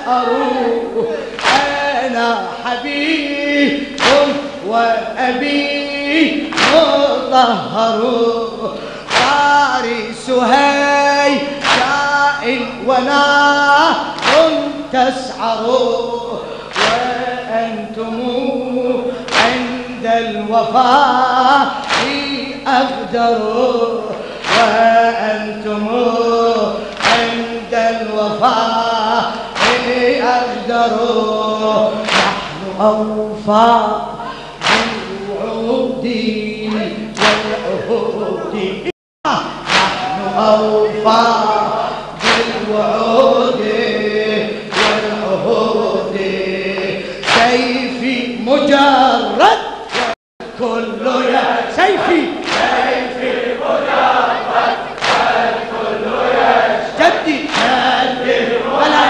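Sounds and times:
men chanting over a microphone: 0:00.0 - 0:59.0
loud rhythmic thud: 0:00.7 - 0:38.2, 0:39.3 - 0:50.6, 0:51.2 - 0:59.0
loud sharp slap: 0:01.4 - 0:01.8, 0:03.9 - 0:04.7, 0:06.5 - 0:07.1, 0:09.0 - 0:09.5, 0:11.4 - 0:12.0, 0:14.1 - 0:14.7, 0:16.7 - 0:17.2, 0:19.3 - 0:19.8, 0:21.8 - 0:22.4, 0:24.1 - 0:24.9, 0:26.9 - 0:27.4, 0:29.3 - 0:30.0, 0:32.0 - 0:32.6, 0:34.6 - 0:35.2, 0:36.7 - 0:37.6, 0:39.4 - 0:40.6, 0:42.2 - 0:42.7, 0:44.7 - 0:45.2, 0:46.7 - 0:47.8, 0:49.7 - 0:50.2, 0:52.0 - 0:53.0, 0:54.9 - 0:55.4, 0:57.5 - 0:57.9.

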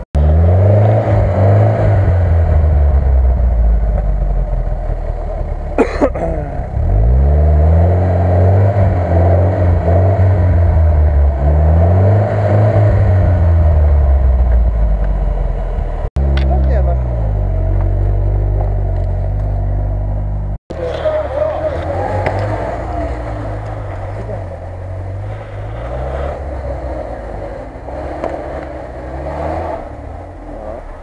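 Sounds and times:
off-road vehicle engine revving: 0:00.0 - 0:31.0
sharp crack: 0:20.7 - 0:31.0.

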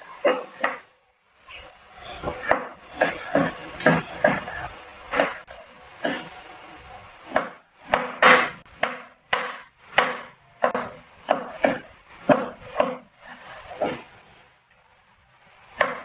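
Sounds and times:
knife chopping on plastic board: 0:07.3 - 0:13.0, 0:15.8 - 0:16.0.

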